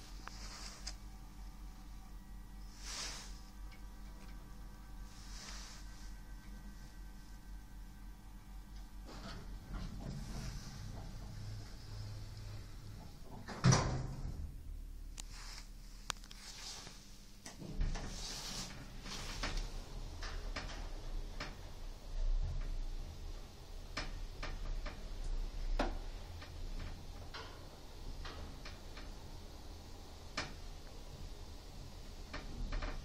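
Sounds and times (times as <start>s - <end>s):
lift drive humming: 5.8s - 13.6s
lift doors shutting: 9.0s - 14.5s.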